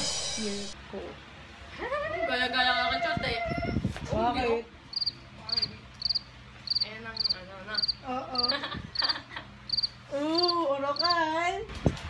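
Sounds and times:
cricket chirping: 4.9 - 9.1, 9.7 - 11.2.

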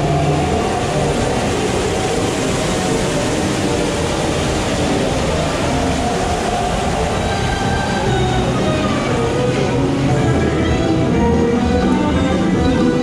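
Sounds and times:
water rumbling through ride trough: 0.0 - 13.0.

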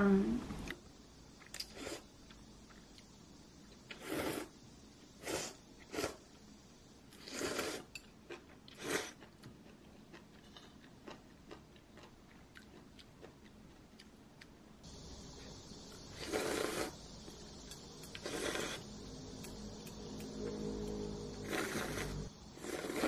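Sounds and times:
person slurping noodles: 7.2 - 7.9, 16.2 - 17.0, 18.2 - 18.8, 21.4 - 23.0.

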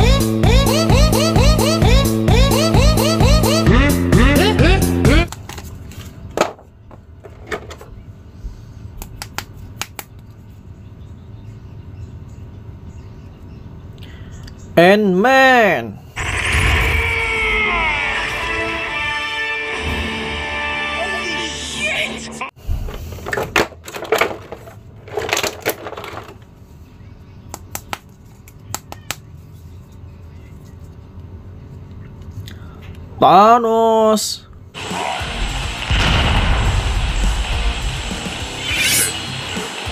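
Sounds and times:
plastic tray crinkling: 23.3 - 26.5.

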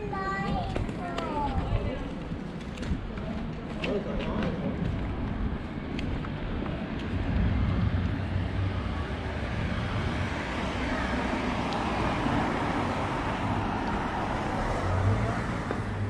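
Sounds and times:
road traffic hum: 0.0 - 16.0.

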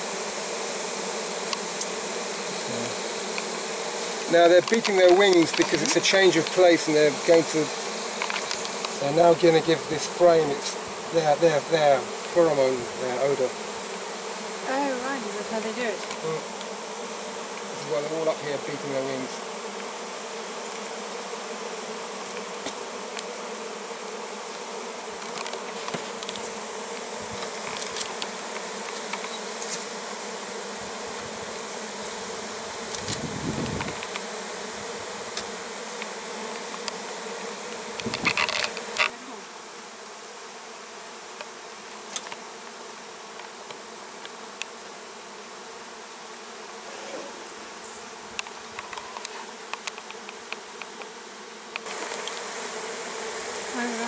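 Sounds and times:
honeybees buzzing: 0.0 - 54.0
hive handling thump: 0.9 - 39.6, 40.3 - 54.0
hive handling clicks: 1.4 - 2.0, 3.1 - 9.0, 16.0 - 16.8, 17.5 - 17.7, 20.7 - 21.0, 22.3 - 23.4, 25.1 - 30.1, 32.5 - 34.4, 35.2 - 39.2, 41.4 - 44.9, 48.3 - 53.6.

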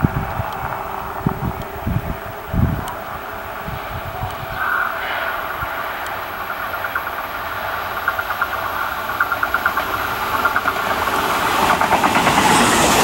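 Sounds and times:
train wheels clattering over rail joints: 5.3 - 13.0.

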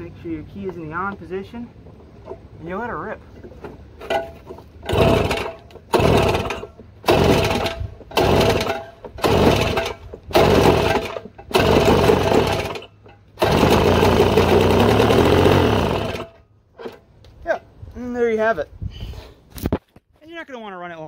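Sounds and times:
two-stroke engine firing and running: 4.1 - 16.4.

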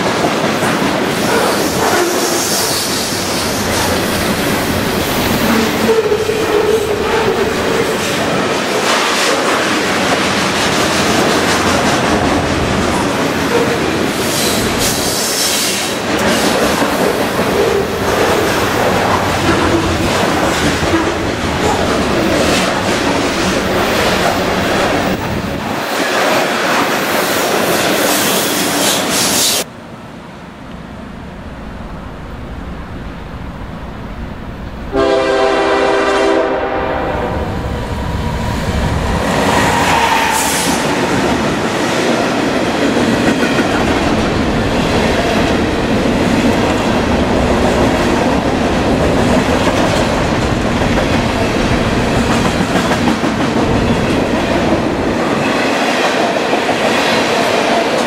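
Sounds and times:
freight train rumbling past: 0.0 - 58.0
locomotive horn: 34.8 - 37.7.

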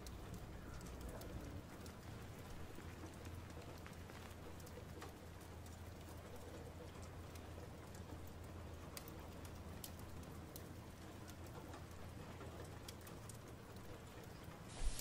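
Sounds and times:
light ticks: 0.0 - 15.0
soft hiss: 14.6 - 15.0.

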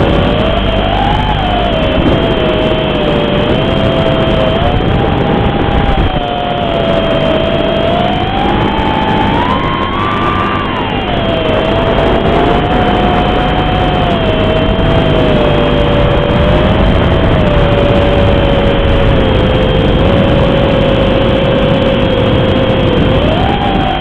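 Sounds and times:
quadcopter motors whining: 0.0 - 24.0.

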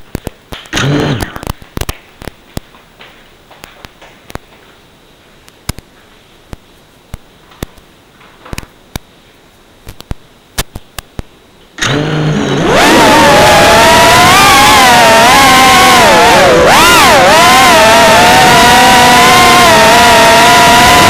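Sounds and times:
drone propeller whine: 11.8 - 21.0.

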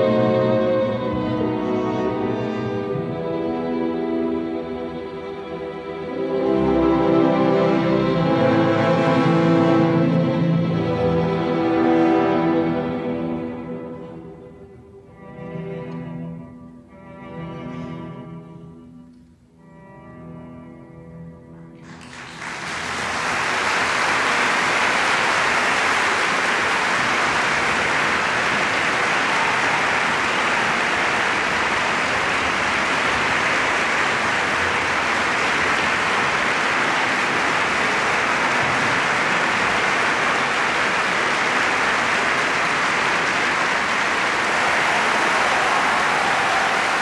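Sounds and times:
audience applauding: 21.8 - 47.0.

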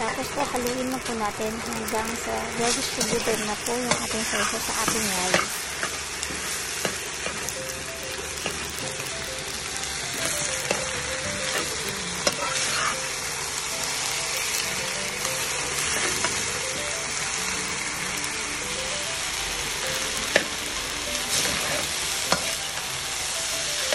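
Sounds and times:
rice sizzling in a wok: 0.0 - 23.9
metal spatula scraping: 2.8 - 5.4, 11.5 - 13.1.

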